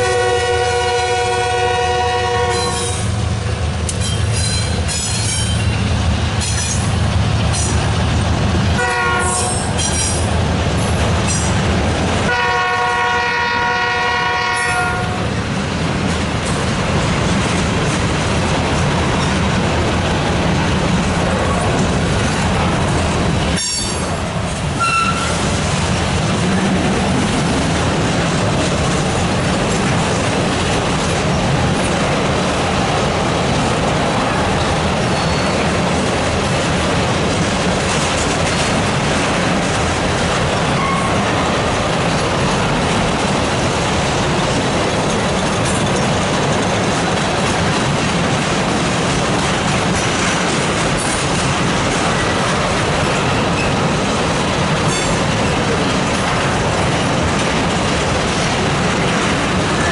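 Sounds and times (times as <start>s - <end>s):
freight train rumbling past: 0.0s - 59.9s
wheel squeals: 35.1s - 35.6s.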